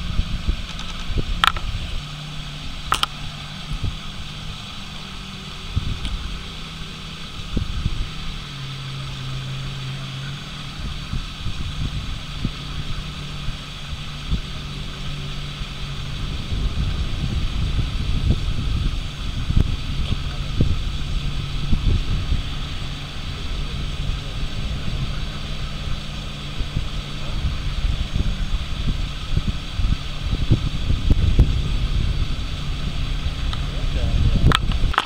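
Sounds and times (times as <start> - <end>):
jet ski engines droning: 0.0 - 35.0
wind rumble on microphone: 0.0 - 35.0.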